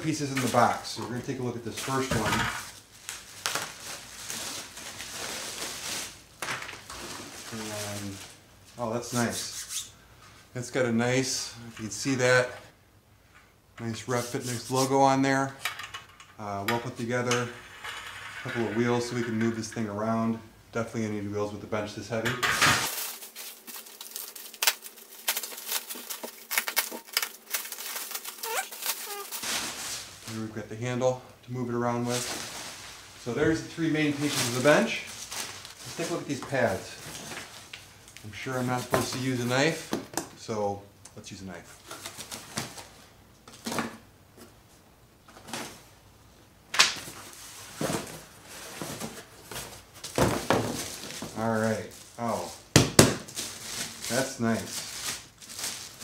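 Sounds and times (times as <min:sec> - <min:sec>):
bubble wrap crinkling and crackling: 0:02.7 - 0:08.4, 0:22.8 - 0:30.6, 0:32.0 - 0:39.7, 0:47.1 - 0:56.0
knife slitting packing tape: 0:22.9 - 0:29.4
cardboard rustling: 0:22.9 - 0:30.5, 0:47.0 - 0:52.6.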